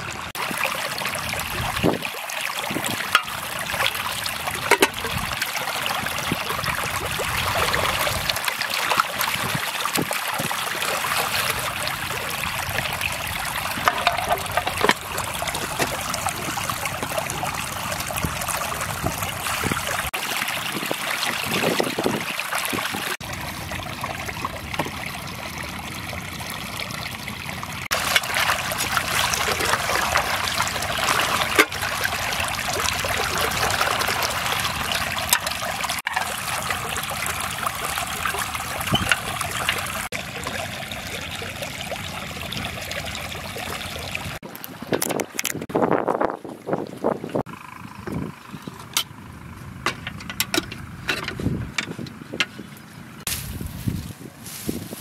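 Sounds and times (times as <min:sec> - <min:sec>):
water poured onto wet ground: 0:00.0 - 0:44.5
water trickling and splashing: 0:00.0 - 0:55.0
metal tin being scrubbed: 0:04.6 - 0:05.2, 0:13.8 - 0:16.6.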